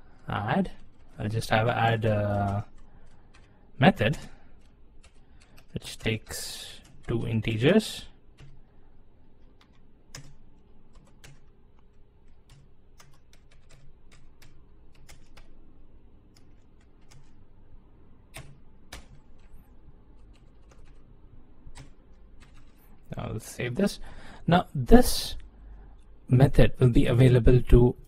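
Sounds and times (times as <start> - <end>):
typing on a keyboard: 1.8 - 3.5, 9.5 - 11.5, 12.2 - 15.5, 16.3 - 17.4, 18.4 - 19.6, 20.2 - 21.0, 21.7 - 22.8.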